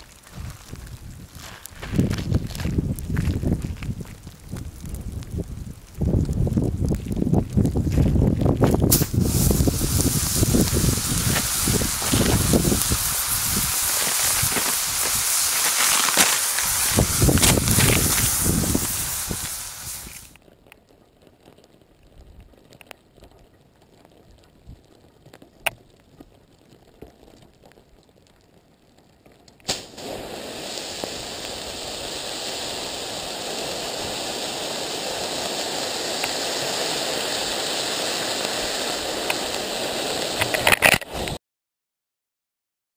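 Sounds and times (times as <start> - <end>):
pops: 0.0 - 20.8, 29.3 - 41.4
faint crackles: 0.0 - 41.4
loud hiss of spraying soda: 8.9 - 20.4, 29.7 - 41.4.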